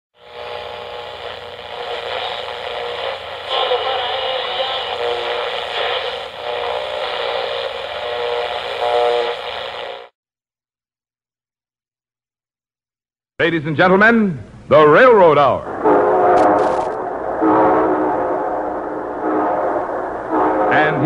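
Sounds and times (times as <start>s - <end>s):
hissy radio noise: 0.2s - 10.1s.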